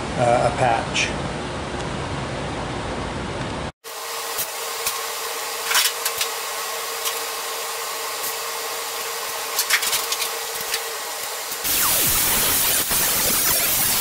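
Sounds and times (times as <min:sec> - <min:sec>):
mechanical whir: 0:08.2 - 0:14.0.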